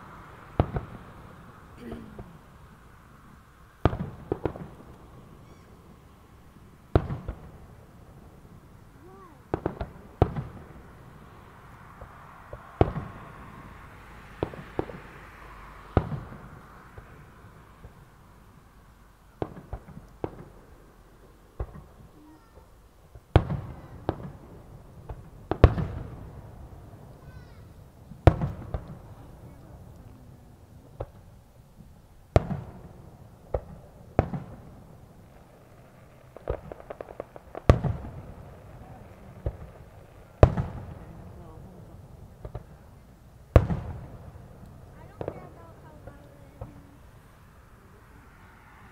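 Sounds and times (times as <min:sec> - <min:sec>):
distant fireworks bangs: 0:00.0 - 0:02.8, 0:03.8 - 0:18.2, 0:19.3 - 0:47.7
small crackling pops: 0:35.3 - 0:38.2
firework shells bursting: 0:35.3 - 0:41.1.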